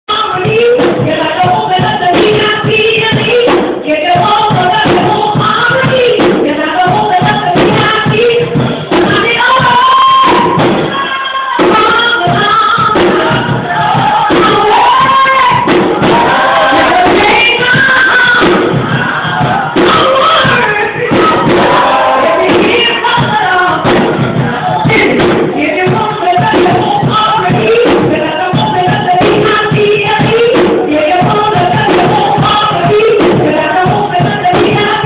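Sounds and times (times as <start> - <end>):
backing music: 0.1 - 35.0
woman singing into microphone: 0.1 - 35.0.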